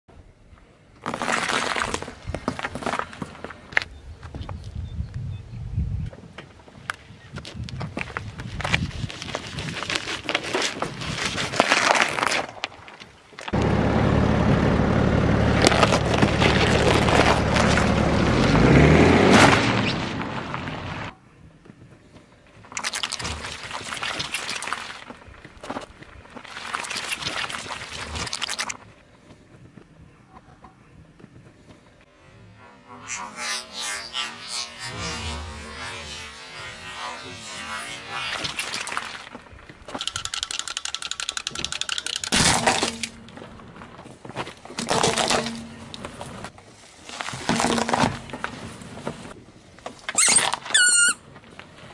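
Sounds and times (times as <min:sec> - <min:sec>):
objects crackling under car tyre: 0:00.9 - 0:04.8, 0:06.3 - 0:13.8, 0:15.2 - 0:21.1, 0:21.7 - 0:32.2, 0:33.0 - 0:51.9
crunching bursts: 0:15.5 - 0:20.4, 0:33.1 - 0:46.5.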